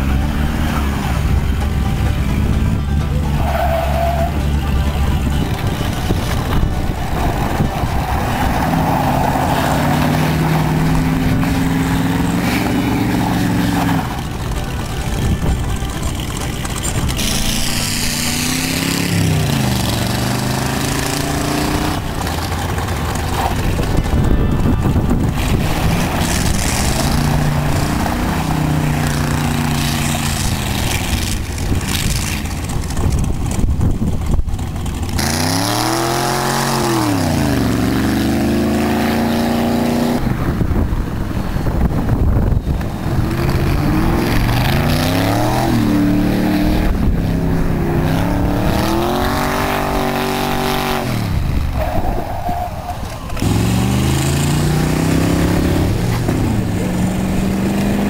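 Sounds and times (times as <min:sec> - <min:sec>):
car engines accelerating: 0:00.0 - 0:58.0.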